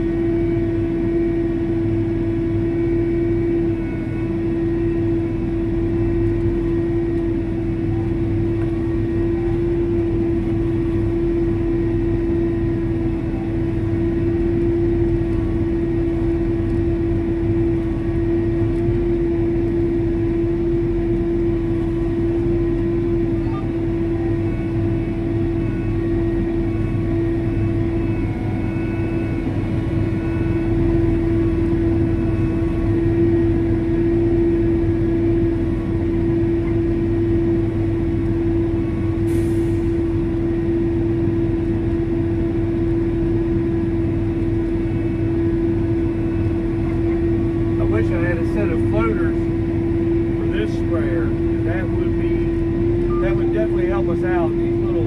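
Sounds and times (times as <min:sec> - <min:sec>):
tractor engine drone: 0:00.0 - 0:55.0.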